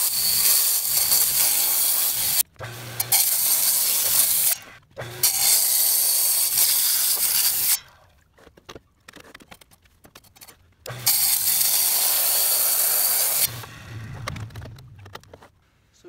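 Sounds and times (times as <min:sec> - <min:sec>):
wet saw cutting concrete: 0:00.0 - 0:07.8, 0:10.9 - 0:13.6.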